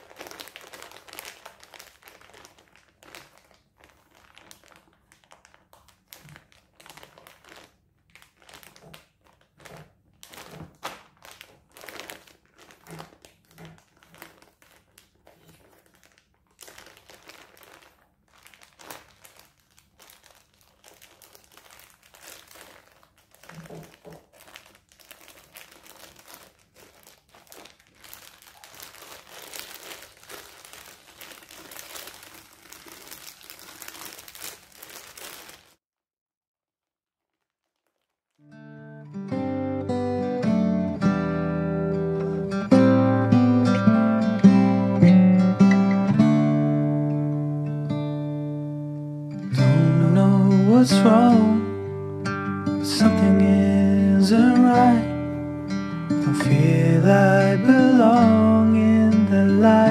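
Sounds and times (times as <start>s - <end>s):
plastic bags crinkling: 0.0s - 35.8s, 37.1s - 38.6s, 52.3s - 59.9s.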